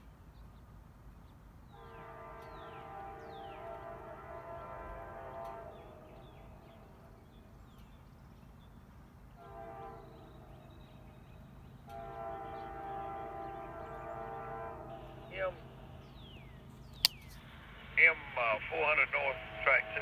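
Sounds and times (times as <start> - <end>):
train rumbling: 0.0 - 20.0
locomotive air horn blasts: 1.7 - 7.1, 9.4 - 10.6, 11.9 - 16.0, 19.2 - 20.0.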